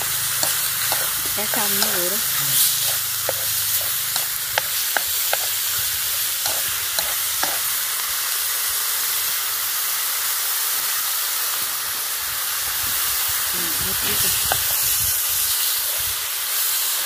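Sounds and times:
meat and fish sizzling in wok: 0.0s - 17.0s
utensils clicking against pan: 0.3s - 5.6s, 6.4s - 7.7s.

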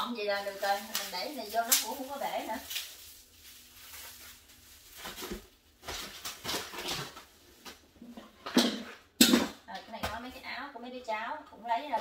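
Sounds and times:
plastic bags rustling: 0.0s - 8.4s.

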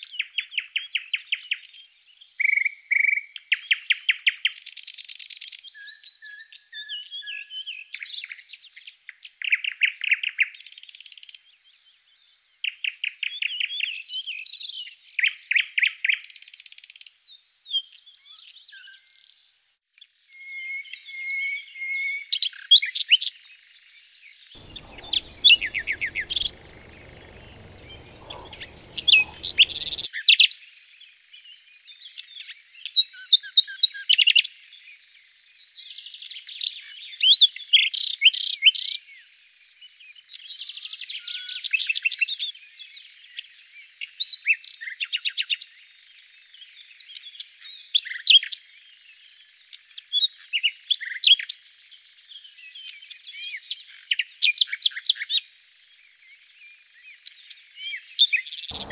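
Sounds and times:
songbirds chirping and trilling: 24.6s - 30.0s
whistled bird calls: 24.6s - 30.1s.

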